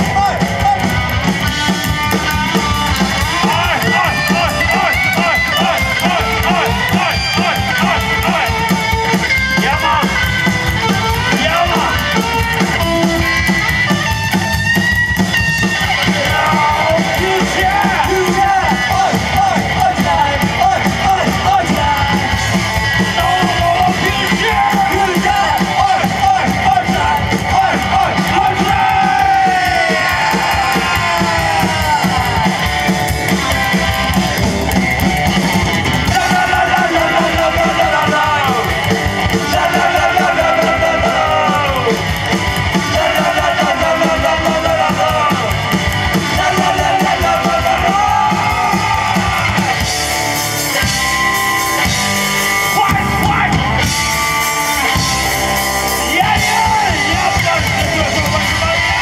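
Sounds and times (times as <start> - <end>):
electric guitar bending lead notes: 0.0 - 59.0
rockabilly band playing live: 0.0 - 59.0
person singing or shouting: 2.3 - 12.8, 15.8 - 22.3, 23.0 - 32.8, 36.0 - 42.2, 42.8 - 49.8, 52.6 - 55.1, 55.9 - 59.0.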